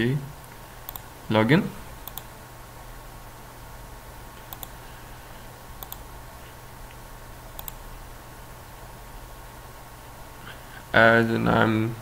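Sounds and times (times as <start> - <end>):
computer mouse clicks: 0.4 - 1.1, 2.0 - 2.3, 4.4 - 4.8, 5.8 - 6.1, 7.5 - 7.8.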